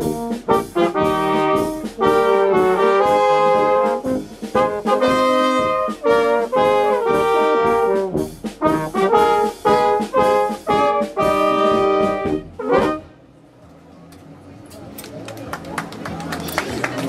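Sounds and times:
brass band playing: 0:00.0 - 0:13.2.

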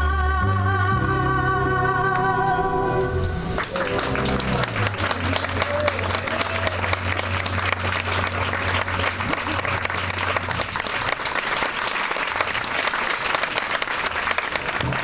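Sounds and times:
low steady note: 0:01.6 - 0:11.0
audience applauding: 0:02.4 - 0:15.0.

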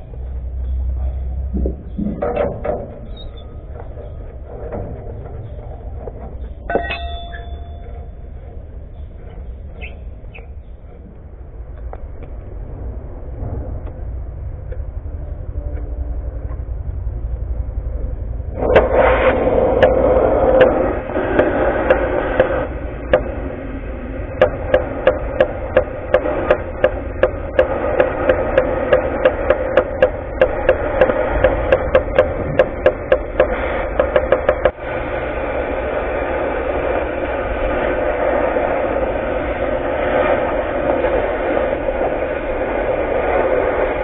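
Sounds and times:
cutting torch hissing: 0:18.5 - 0:44.0
sharp knocks: 0:24.3 - 0:34.8.

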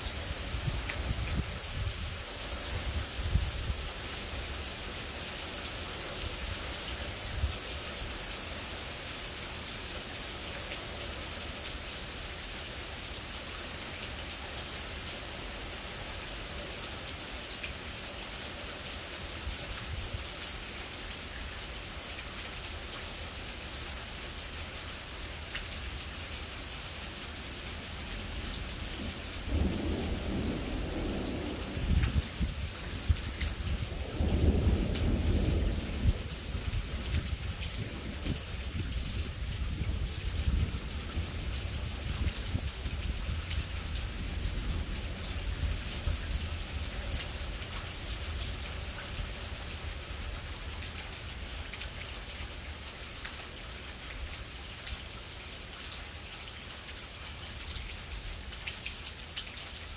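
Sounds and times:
steady rain: 0:00.0 - 0:59.9
thunder rumbling: 0:29.0 - 0:38.2.

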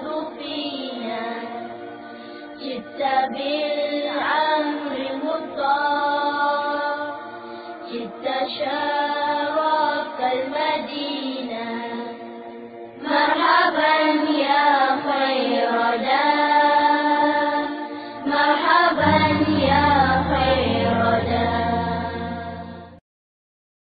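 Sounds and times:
voices singing devotional song: 0:00.0 - 0:23.0
low steady accompaniment: 0:17.8 - 0:23.0.

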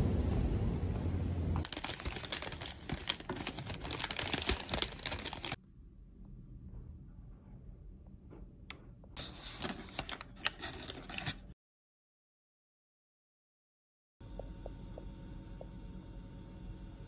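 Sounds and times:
low rumble: 0:00.0 - 0:02.0
paper bag rustling: 0:01.6 - 0:05.6, 0:09.2 - 0:11.6.

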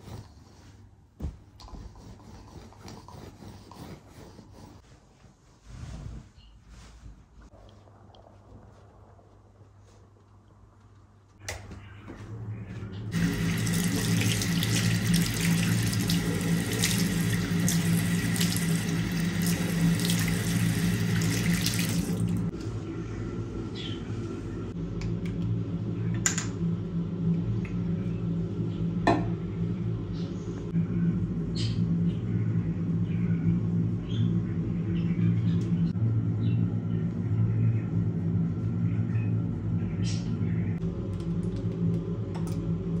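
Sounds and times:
tap water running into sink: 0:13.1 - 0:22.5.

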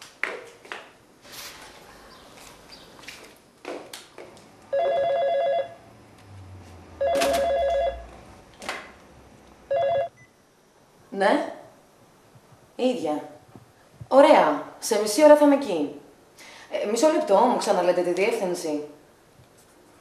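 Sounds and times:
telephone ringing electronic trill: 0:04.7 - 0:05.8, 0:07.0 - 0:08.1, 0:09.7 - 0:10.1.

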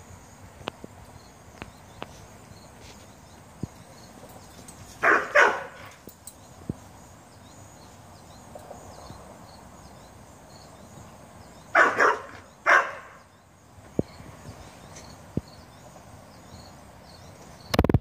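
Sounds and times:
dog barking: 0:05.0 - 0:06.0, 0:11.8 - 0:13.2.

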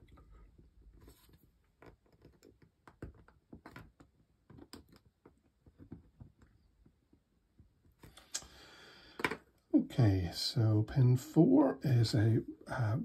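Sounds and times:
small clicks and taps: 0:01.8 - 0:08.5.

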